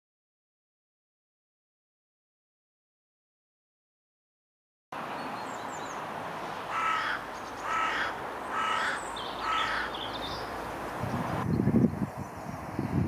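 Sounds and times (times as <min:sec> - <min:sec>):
outdoor background noise: 0:04.9 - 0:13.0
crow cawing: 0:06.7 - 0:10.2.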